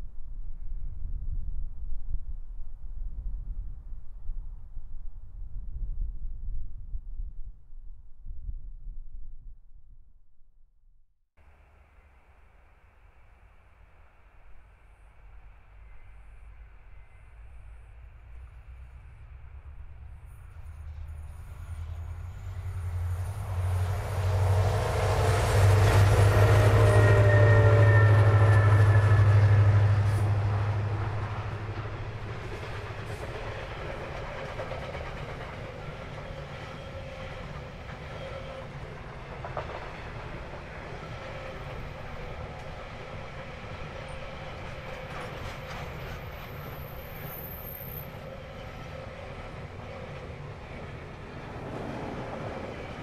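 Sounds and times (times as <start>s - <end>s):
diesel locomotives passing: 11.4s - 53.0s
whining engine tone: 15.9s - 31.8s.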